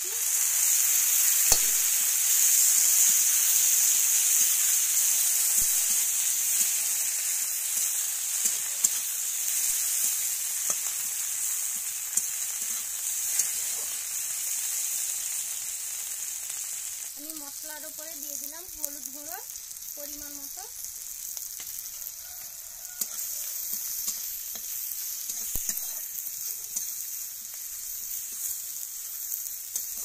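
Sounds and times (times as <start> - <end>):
vegetables sizzling in hot oil: 0.0 - 30.0
metal spatula scraping a pan: 23.0 - 30.0.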